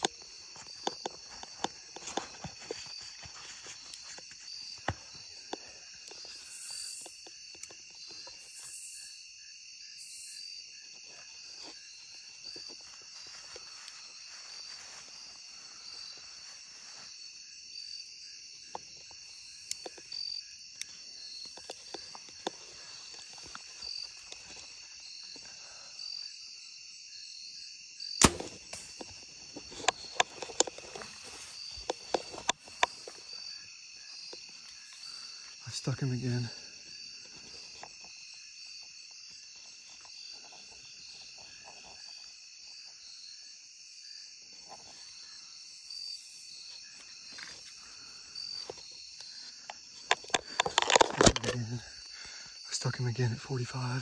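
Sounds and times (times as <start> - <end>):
clicks and rustling: 0.0 - 6.3, 28.2 - 33.2, 48.6 - 51.8
crickets trilling: 0.0 - 54.0
bow shot crack: 28.2 - 30.0.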